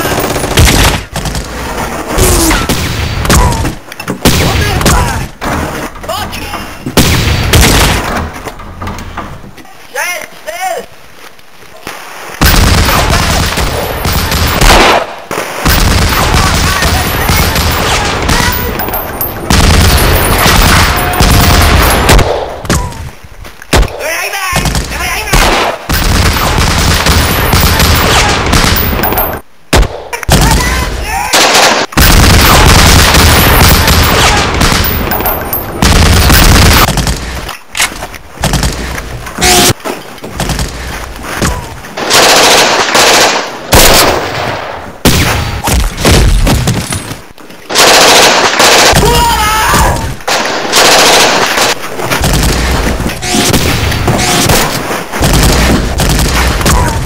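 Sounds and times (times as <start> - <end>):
rifle and automatic gunfire: 0.0 - 1.5, 12.4 - 22.6, 25.3 - 29.4, 31.4 - 37.2, 42.0 - 45.4, 47.7 - 49.2, 50.3 - 56.7.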